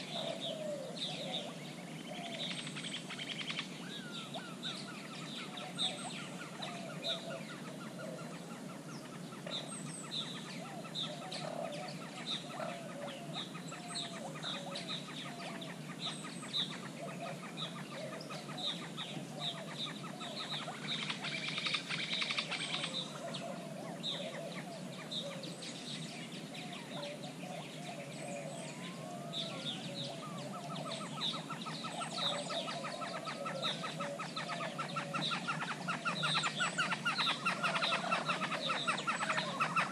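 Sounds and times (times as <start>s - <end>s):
birds clucking low: 0.0s - 39.9s.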